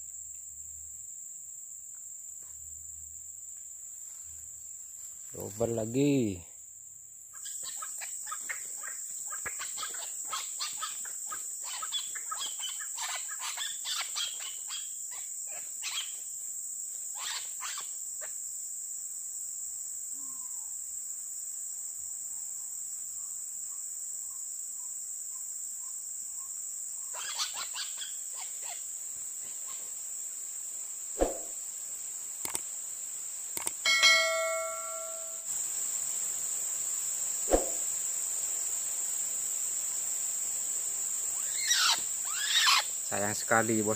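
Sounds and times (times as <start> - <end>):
high-pitched insect drone: 7.4 - 18.3, 33.6 - 43.9
click: 32.4 - 32.6, 33.6 - 33.8
short bell-like chime: 33.9 - 35.5.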